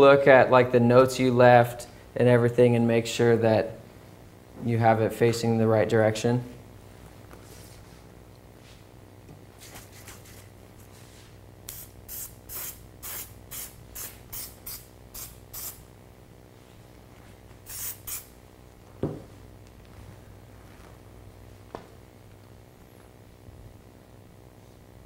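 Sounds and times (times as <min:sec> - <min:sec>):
aerosol can spraying: 0:11.7 - 0:15.9, 0:17.6 - 0:18.4
thump: 0:19.0 - 0:19.3.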